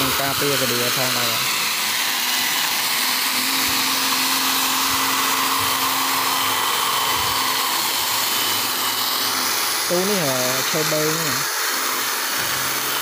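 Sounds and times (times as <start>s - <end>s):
angle grinder sanding wood: 0.0s - 13.0s.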